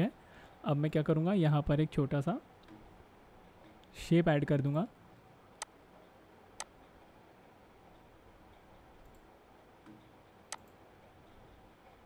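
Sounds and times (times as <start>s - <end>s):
computer mouse clicks: 6.6s - 6.8s, 9.0s - 10.8s.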